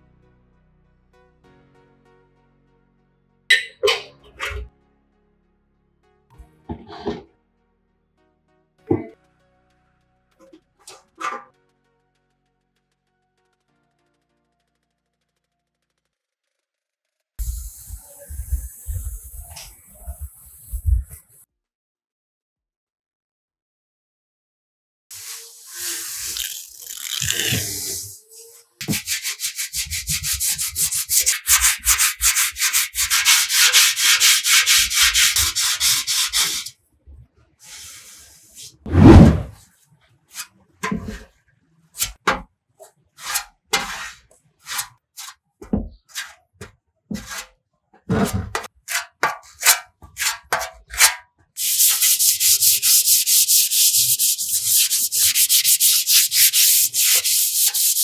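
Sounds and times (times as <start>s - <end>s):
hand sanding strokes: 17.4s - 21.4s, 27.4s - 36.7s, 51.6s - 58.0s.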